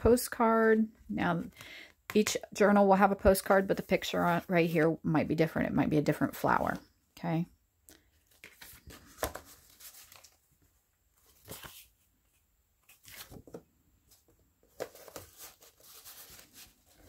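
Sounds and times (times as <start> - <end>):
paper rustling and scraping: 8.3 - 10.4, 11.2 - 17.0.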